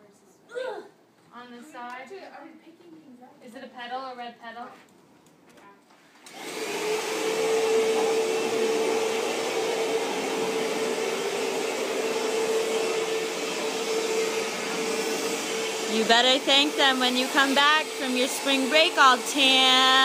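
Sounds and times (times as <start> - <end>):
vacuum cleaner motor running: 6.3 - 20.0.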